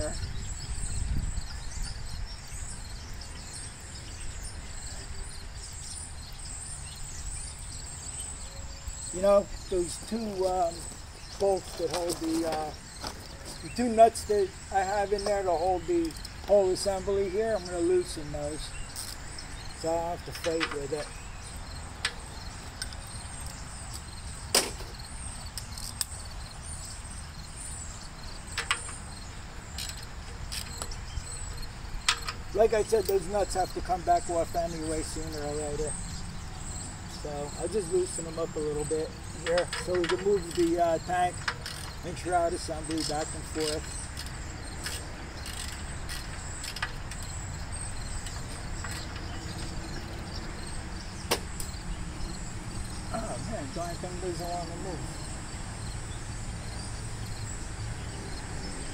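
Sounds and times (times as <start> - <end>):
crickets chirping: 0.0 - 58.9
faint metal clicks: 20.2 - 21.2, 39.3 - 47.4
wrench clinking on nuts: 39.4 - 47.3.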